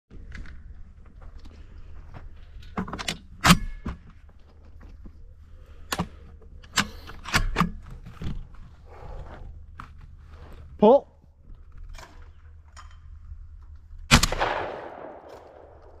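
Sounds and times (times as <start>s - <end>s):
shotgun handling clicks and knocks: 2.5s - 5.2s, 5.8s - 8.4s, 11.6s - 16.0s.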